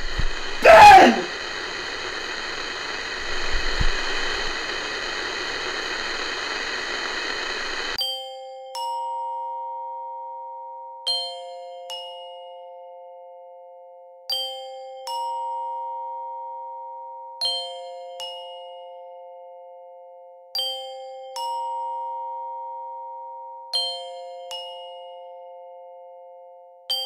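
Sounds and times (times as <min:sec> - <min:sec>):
radio static hiss: 0:00.0 - 0:08.0
bell-like notes music: 0:08.0 - 0:27.0.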